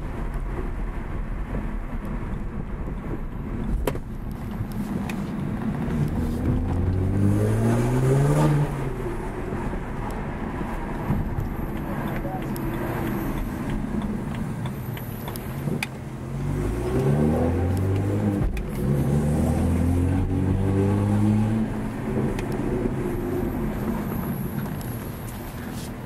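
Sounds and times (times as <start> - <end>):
car engine accelerating: 0.2 - 25.7.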